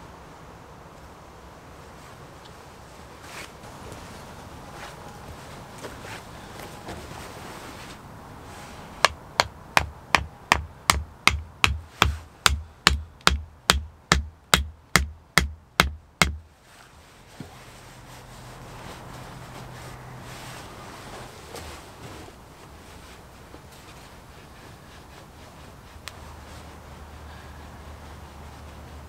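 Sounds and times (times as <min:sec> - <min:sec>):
axe head knocking wooden stake: 0:09.0 - 0:16.4.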